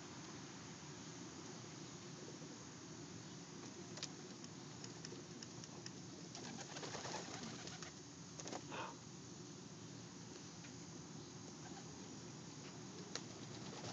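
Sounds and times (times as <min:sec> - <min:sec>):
pigeons cooing: 0:06.4 - 0:08.0.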